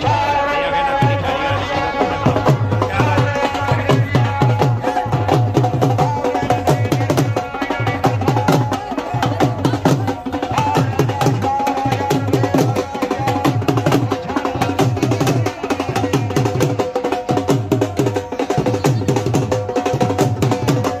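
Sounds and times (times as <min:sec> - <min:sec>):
barrel drums beaten fast: 0:02.0 - 0:21.0.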